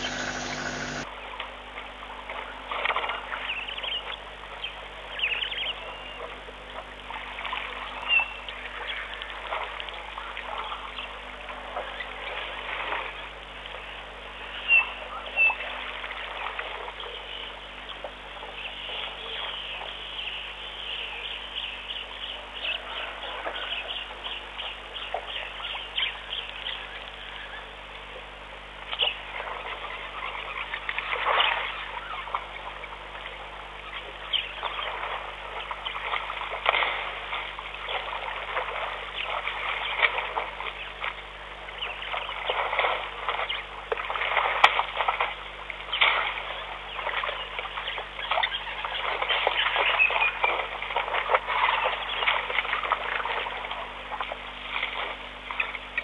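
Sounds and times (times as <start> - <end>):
birds chirping: 0.0 - 1.1, 45.8 - 50.8
water and mud splashing: 0.0 - 56.0.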